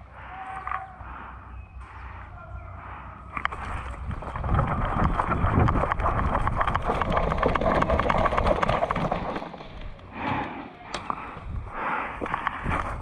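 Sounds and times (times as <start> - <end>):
gear rattling: 3.5 - 10.1
wind on microphone: 3.6 - 9.0, 11.4 - 13.0.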